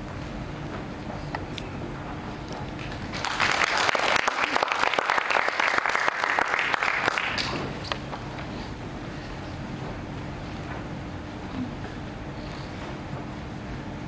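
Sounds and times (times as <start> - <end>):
audience applauding: 2.8 - 7.9.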